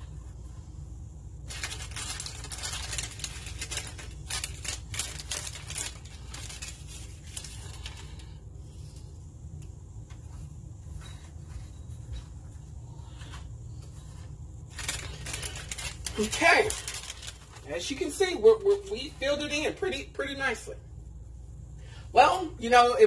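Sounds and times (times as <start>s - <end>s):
low steady hum: 0.0s - 23.0s
packaging crinkling: 1.4s - 8.3s, 14.6s - 18.9s.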